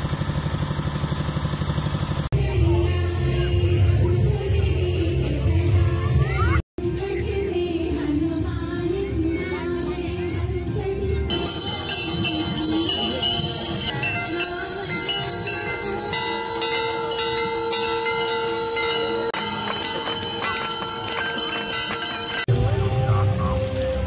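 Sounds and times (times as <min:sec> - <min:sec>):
bells ringing rapidly: 0:11.3 - 0:22.7.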